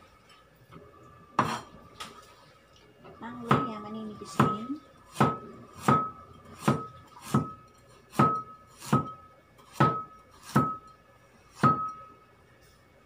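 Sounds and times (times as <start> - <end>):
cleaver chopping on wooden board: 4.4 - 9.1, 9.8 - 10.8.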